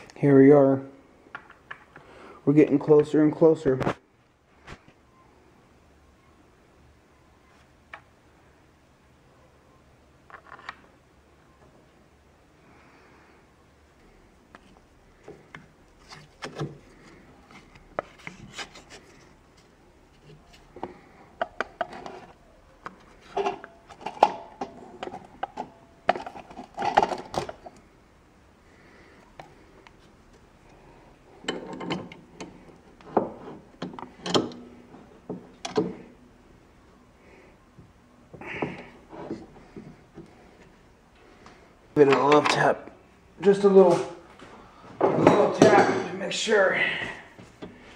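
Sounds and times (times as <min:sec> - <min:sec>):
clinks and knocks in a vise: 0:31.4 - 0:36.0.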